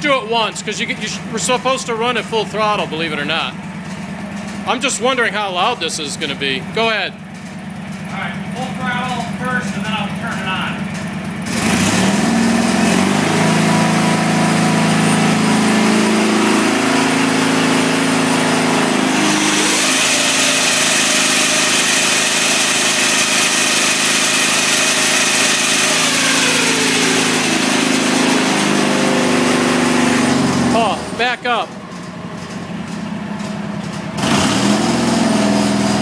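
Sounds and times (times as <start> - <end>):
snow thrower auger whine: 0.0 - 36.0
tractor engine at full throttle: 0.0 - 36.0.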